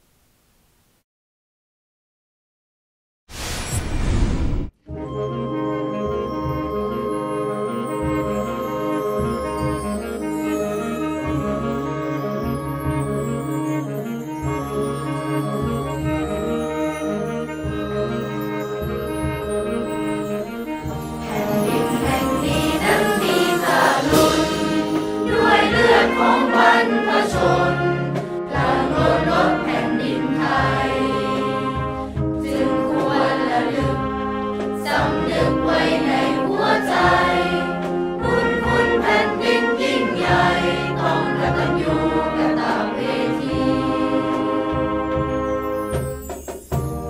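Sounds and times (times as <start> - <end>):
wind band with brass: 4.9 - 47.0
children's choir singing: 17.9 - 45.4.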